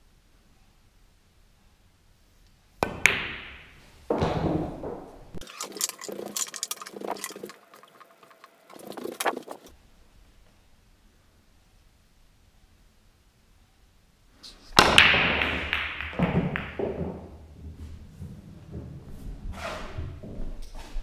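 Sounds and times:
cue tip hitting ball: 2.8s - 5.4s, 14.8s - 17.4s
pool balls clattering: 2.8s - 9.7s, 14.8s - 19.4s.

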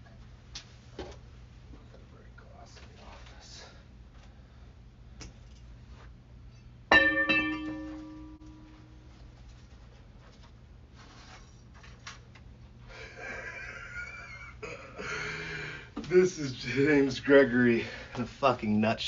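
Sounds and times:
low hum: 3.6s - 17.2s.

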